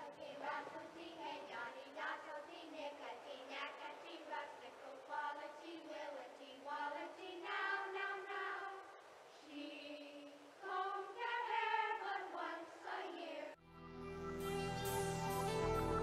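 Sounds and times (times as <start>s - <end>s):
children singing in unison: 0.0s - 13.6s.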